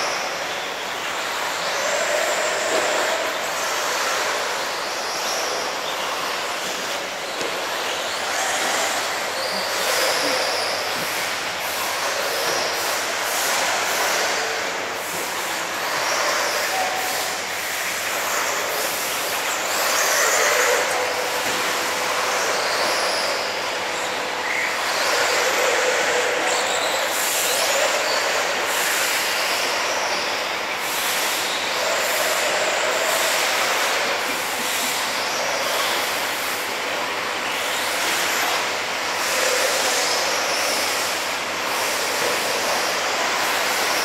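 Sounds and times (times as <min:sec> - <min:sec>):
rc car motors whining: 0:00.0 - 0:44.0.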